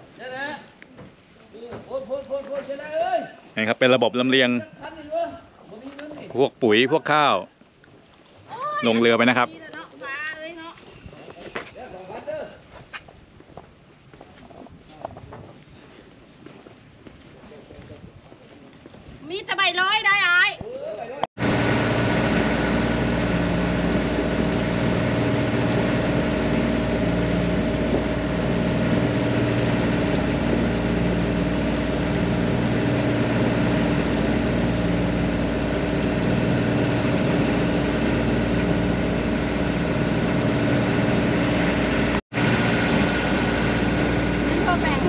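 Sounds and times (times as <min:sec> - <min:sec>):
boat engine droning: 0:21.4 - 0:45.0
water rushing over hull: 0:21.4 - 0:45.0.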